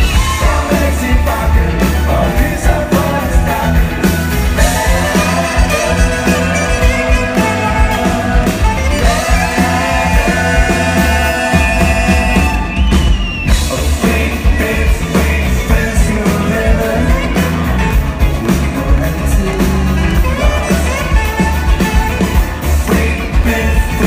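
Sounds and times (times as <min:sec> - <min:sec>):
live rock band playing: 0:00.0 - 0:24.0
saxophone solo: 0:04.5 - 0:13.5, 0:20.0 - 0:22.7.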